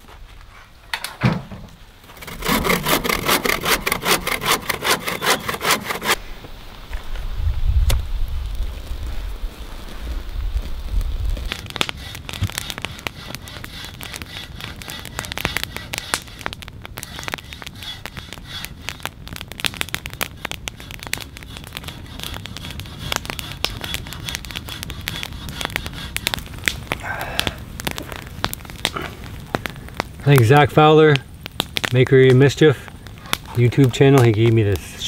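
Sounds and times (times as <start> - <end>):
campfire crackling and popping: 0.0 - 35.0.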